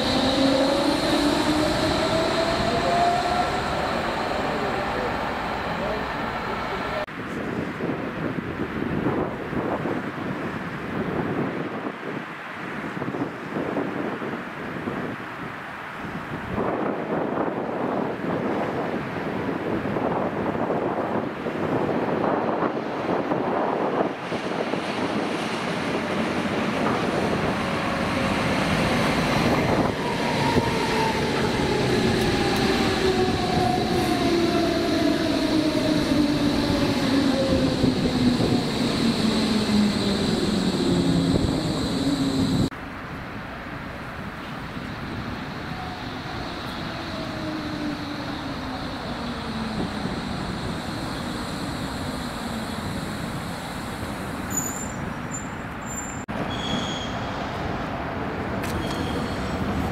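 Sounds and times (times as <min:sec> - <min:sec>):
wheels rumbling on rails: 0:16.1 - 0:59.9
short high squeaks: 0:54.5 - 0:57.4, 0:58.6 - 0:59.7.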